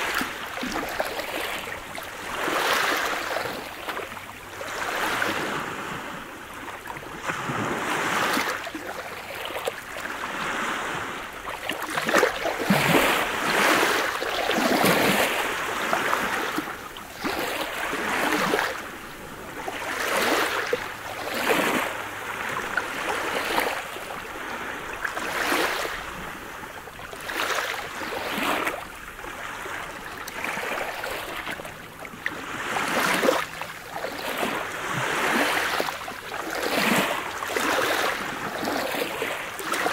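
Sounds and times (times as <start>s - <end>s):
waves washing over pebbles: 0.0s - 39.9s.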